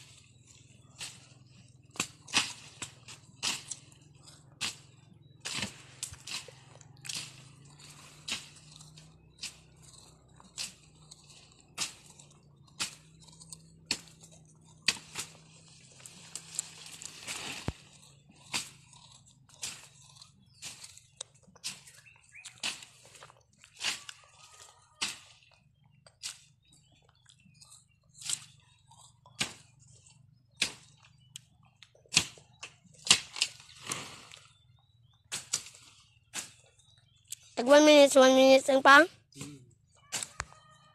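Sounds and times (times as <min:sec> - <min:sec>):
leaves and brush rustling: 0:00.0 - 0:13.3, 0:13.9 - 0:25.5, 0:33.0 - 0:34.7
branches cracking: 0:00.0 - 0:25.6, 0:26.2 - 0:36.8, 0:40.0 - 0:40.7
blade chopping through brush: 0:01.0 - 0:24.2, 0:25.0 - 0:25.4, 0:29.3 - 0:29.8, 0:30.5 - 0:31.2, 0:32.1 - 0:34.4, 0:35.3 - 0:36.7, 0:40.1 - 0:40.5
leaves rustling: 0:14.9 - 0:19.0.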